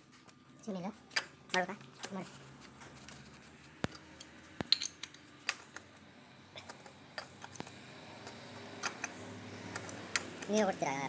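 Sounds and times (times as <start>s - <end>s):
sharp metallic clicks and clinks: 3.9s - 5.6s.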